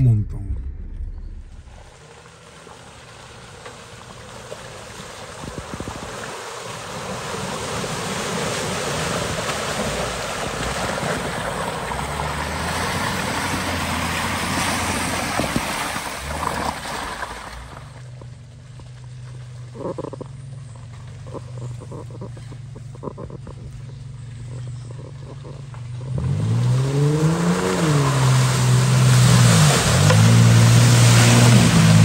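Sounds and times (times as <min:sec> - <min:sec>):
loud rushing noise: 0:00.0 - 0:02.0
vehicle engine running: 0:00.0 - 0:16.5, 0:17.2 - 0:26.7.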